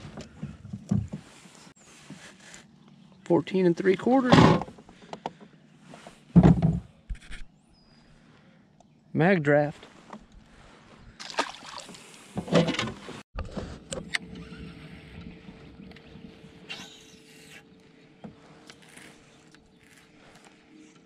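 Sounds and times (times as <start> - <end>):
electric boat motor humming: 13.8 - 21.0.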